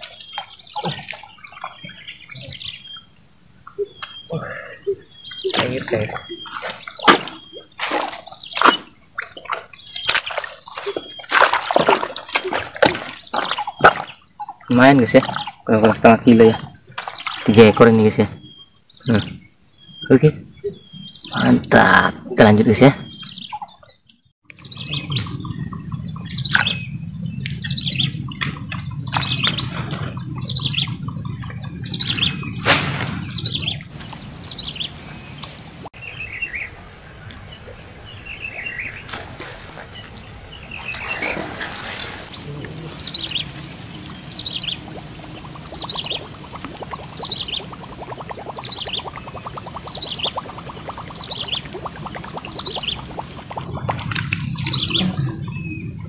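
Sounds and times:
bird falling chirp: 24.7 - 34.9
insects shrilling: 25.0 - 34.4.

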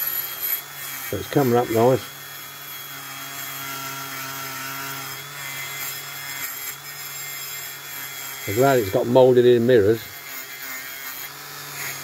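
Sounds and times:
rotary tool motor hum: 0.0 - 12.0
wire brush scrubbing metal: 5.5 - 12.0.

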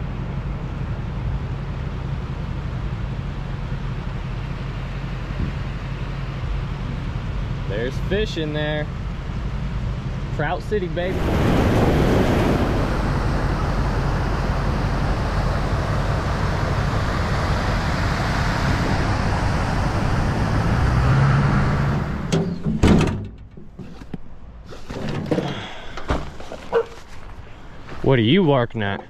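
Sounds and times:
steady rushing noise: 9.8 - 22.3
tailgate opening: 22.3 - 27.2.

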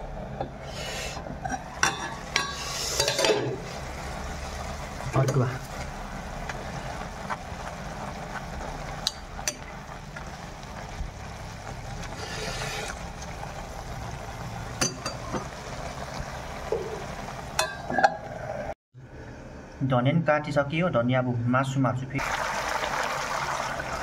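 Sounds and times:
greens sizzling in wok: 1.6 - 17.9.

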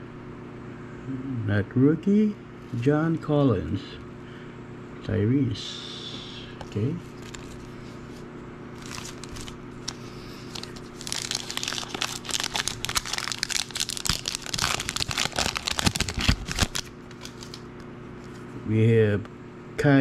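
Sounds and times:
foil wrapper tearing and crinkling: 7.1 - 7.8, 8.7 - 17.7.

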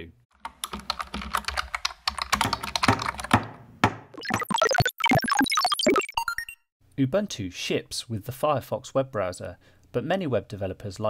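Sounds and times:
keyboard typing: 0.4 - 3.4, 4.2 - 6.5
bright electronic jingle: 4.2 - 6.6.

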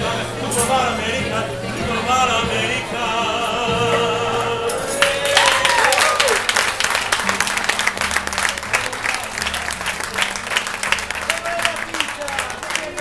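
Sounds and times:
person singing opera: 0.0 - 6.4
backing track music: 0.0 - 13.0
audience applause: 5.0 - 13.0.

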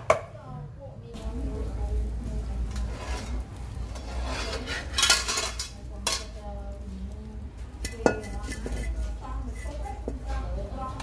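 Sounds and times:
metal cookware clattering: 2.5 - 6.6, 7.8 - 10.2
wok clanging on stove: 2.7 - 6.4, 7.8 - 10.2.

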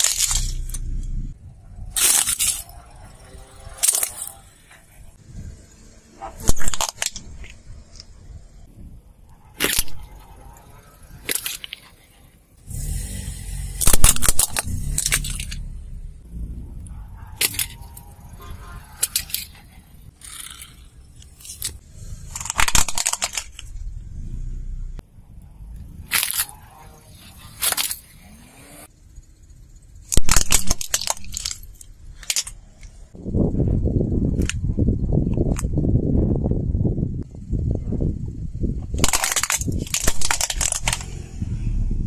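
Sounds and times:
plastic toys cracking under tyre: 0.0 - 1.0, 1.9 - 4.5, 6.4 - 8.1, 9.6 - 10.2, 11.1 - 12.0, 13.8 - 15.6, 17.4 - 18.1, 19.0 - 23.8, 26.0 - 26.6, 27.6 - 28.2, 30.0 - 33.0, 38.9 - 41.4.

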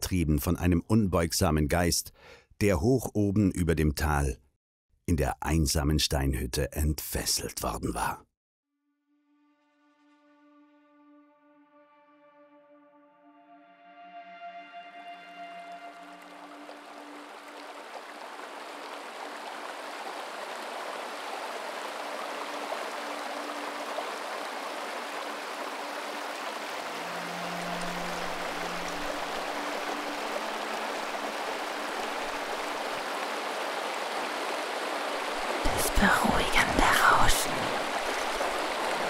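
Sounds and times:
stream splashing over rocks: 16.0 - 39.0.

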